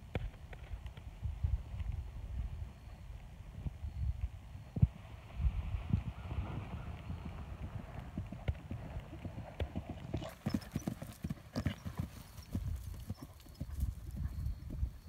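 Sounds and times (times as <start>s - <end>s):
horse hoofbeats on grass: 7.2s - 15.0s.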